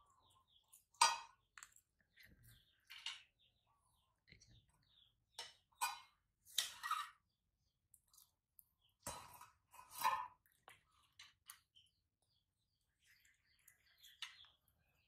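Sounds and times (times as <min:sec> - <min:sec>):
spoon scraping pot: 0:05.7 - 0:07.4, 0:09.0 - 0:10.8.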